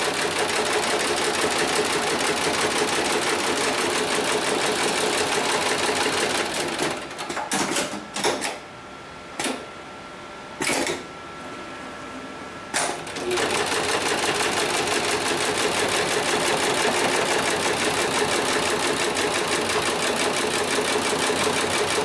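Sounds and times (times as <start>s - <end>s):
sewing machine stitching rattle: 13.1s - 22.0s.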